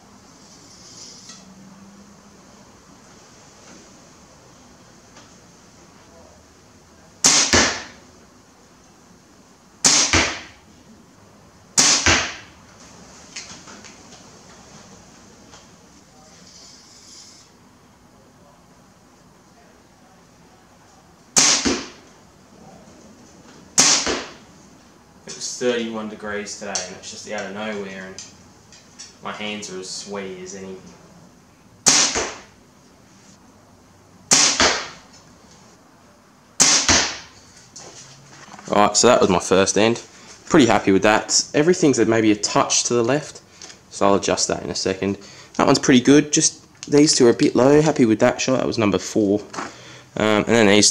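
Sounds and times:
arrow striking target: 0:07.2 - 0:08.0, 0:09.8 - 0:10.6, 0:11.8 - 0:12.5, 0:21.4 - 0:22.0, 0:23.8 - 0:24.4, 0:31.8 - 0:32.5, 0:34.3 - 0:35.0, 0:36.6 - 0:37.4.

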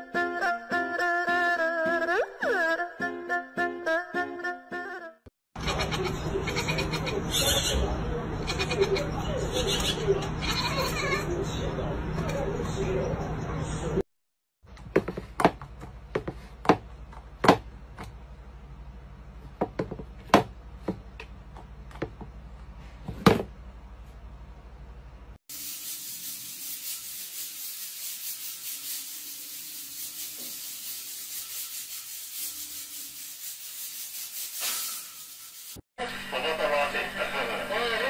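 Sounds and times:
steady hiss: 0:25.5 - 0:35.8.

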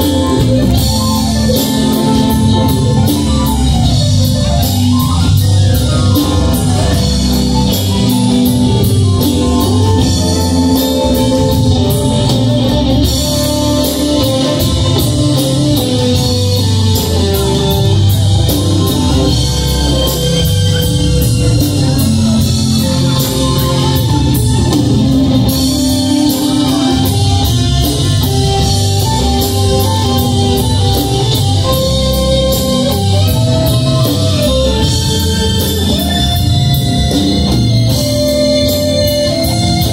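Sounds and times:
bass line: 0:00.0 - 0:39.9
live rock band playing: 0:00.0 - 0:39.9.

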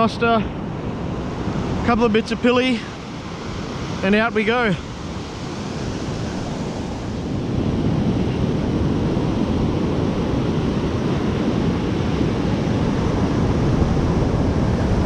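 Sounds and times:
ocean surf breaking on beach: 0:00.0 - 0:15.0
wind buffeting microphone: 0:00.0 - 0:15.0.

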